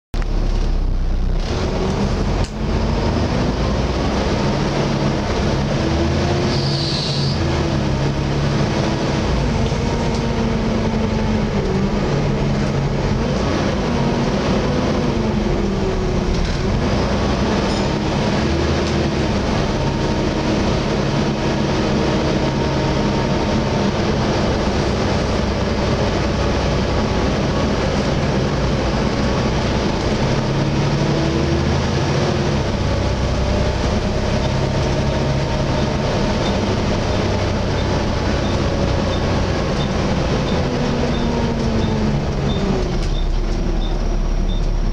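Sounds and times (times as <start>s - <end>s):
bus engine: 0.1s - 44.9s.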